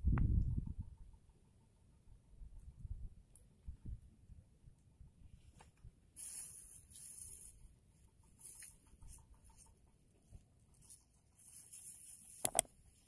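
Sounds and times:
soft hiss: 5.4 - 7.7.

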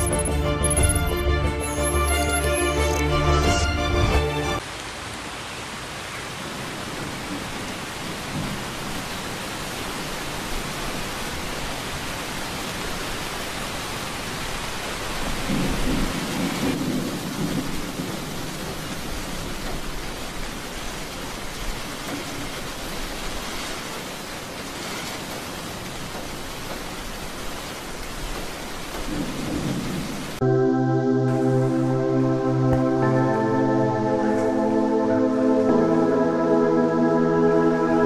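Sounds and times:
heavy rain hissing: 4.2 - 30.4
thunder rumbling: 15.3 - 19.9.

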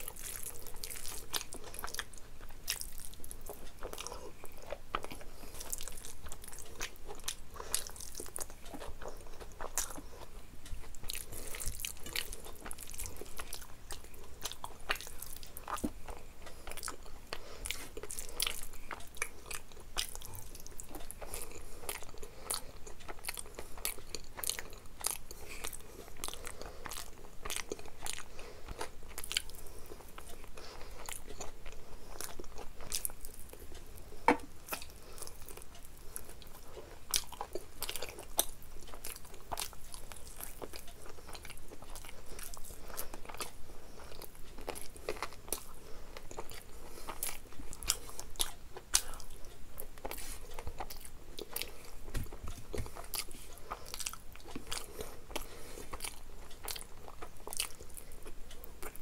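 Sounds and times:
person chewing food: 0.0 - 59.0.

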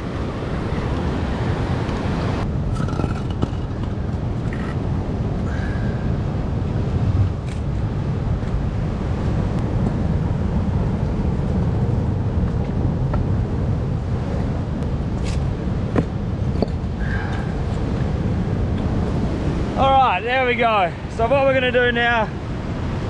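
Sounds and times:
heavy surf rumble: 0.0 - 23.0
wind buffeting microphone: 0.0 - 23.0
rocks knocking: 2.7 - 4.8.

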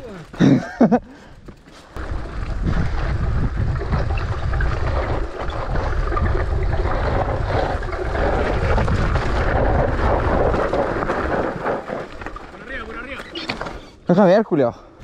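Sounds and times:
bike rattling on dirt trail: 0.0 - 14.5
wind buffeting microphone: 1.3 - 12.2.

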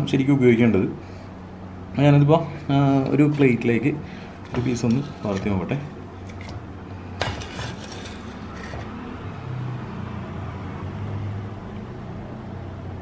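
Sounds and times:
spoon scraping pot: 4.4 - 6.6, 7.2 - 9.0.

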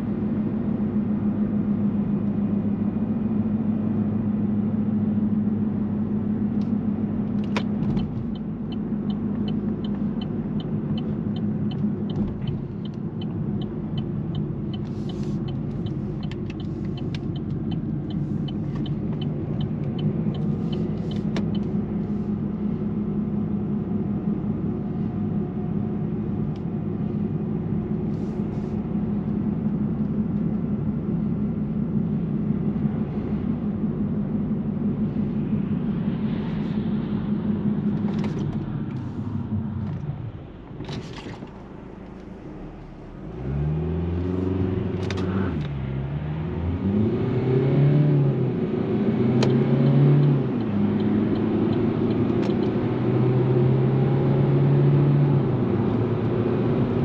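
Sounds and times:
car engine and road hum: 0.0 - 57.0
turn signal ticking: 6.5 - 22.8, 49.3 - 53.4.

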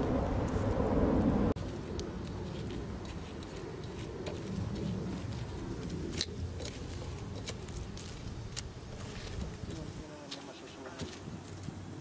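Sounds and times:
low rumble: 0.0 - 8.6
wood fire crackling: 0.0 - 12.0.

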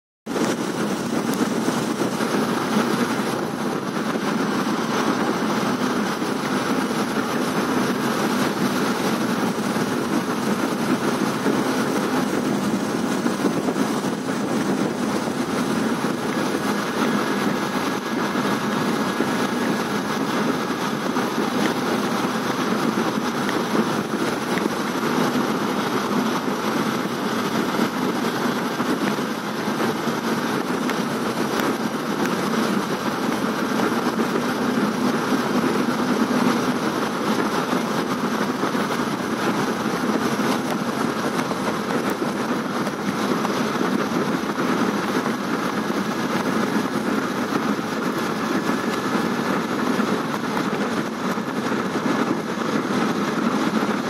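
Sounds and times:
moving train running noise: 0.4 - 54.0.

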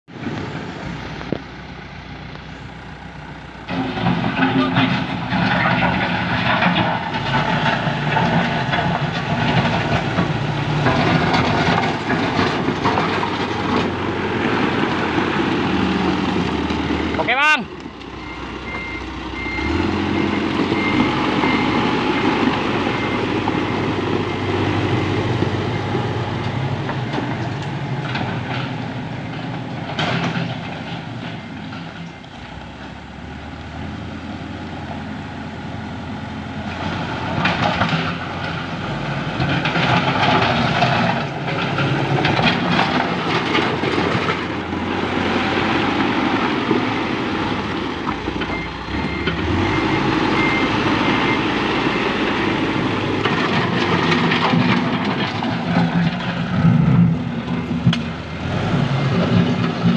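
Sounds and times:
backhoe diesel engine running: 0.1 - 59.9
loud rattling and clatter: 3.7 - 14.4, 39.3 - 46.9, 52.4 - 59.9.

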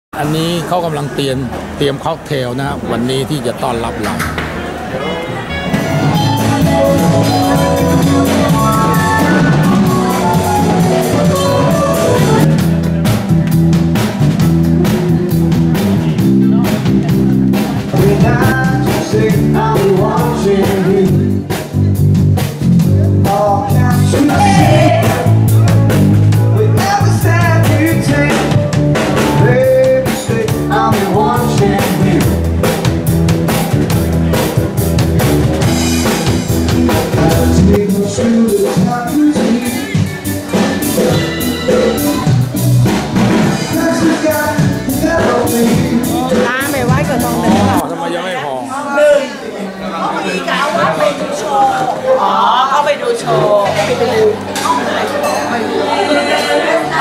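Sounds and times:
keyboard: 0.2 - 48.6
bass guitar: 3.9 - 47.9
drum kit: 5.5 - 47.8
person singing: 6.0 - 12.5, 17.8 - 21.4, 23.2 - 32.4, 37.0 - 42.4, 43.3 - 47.8.

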